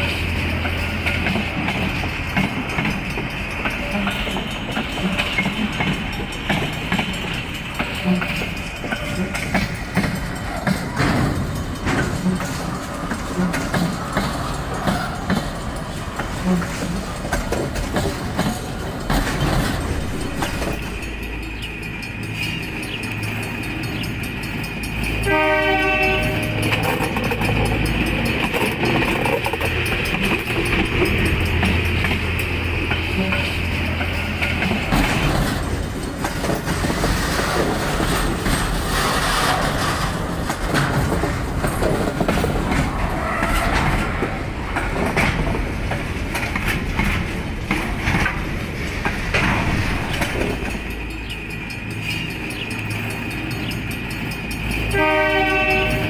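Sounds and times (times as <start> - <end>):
train wheels rumbling and clacking: 0.0 - 56.0
level-crossing bell ringing: 20.0 - 34.4.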